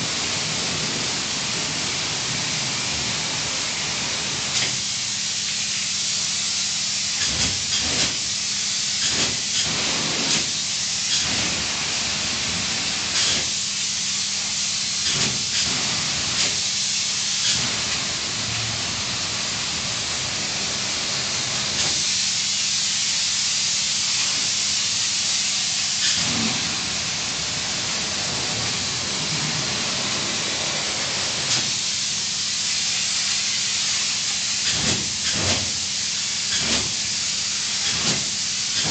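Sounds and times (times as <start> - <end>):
spray-foam gun hissing: 0.0 - 38.9.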